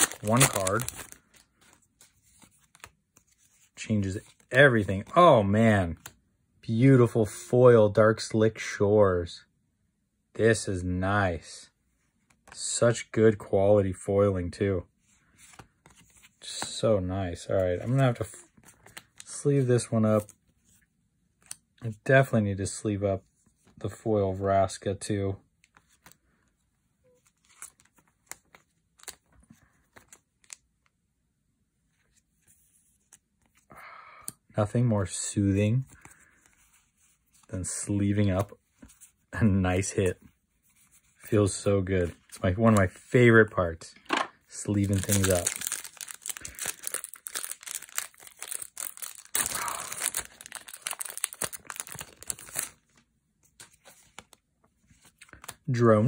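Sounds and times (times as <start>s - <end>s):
foil wrapper crinkling and tearing: 0.0s - 1.5s, 44.6s - 53.0s
plastic card sleeve handled: 0.0s - 5.2s, 15.3s - 16.8s, 27.2s - 30.6s, 44.0s - 55.7s
trading cards clicking and rustling: 0.0s - 5.2s, 44.0s - 52.8s.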